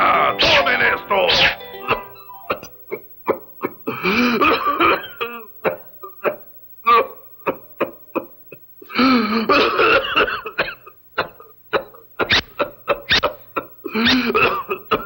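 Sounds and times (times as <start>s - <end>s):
cartoon character coughing: 3.6s - 8.0s, 9.5s - 15.0s.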